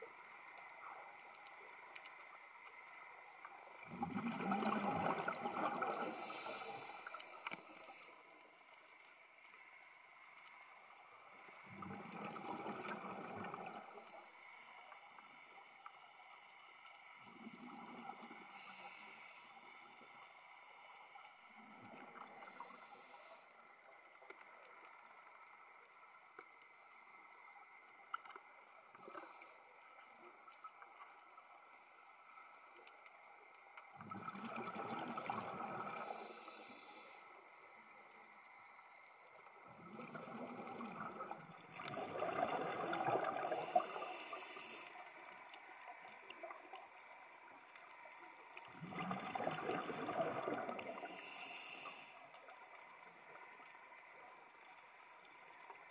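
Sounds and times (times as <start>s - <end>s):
gurgle of exhaled bubbles: 3.8s - 6.6s, 11.6s - 14.0s, 33.9s - 36.2s, 39.6s - 44.2s, 48.6s - 51.2s
diver breathing through regulator: 5.8s - 8.2s, 35.9s - 37.4s, 43.3s - 45.0s, 50.8s - 52.2s.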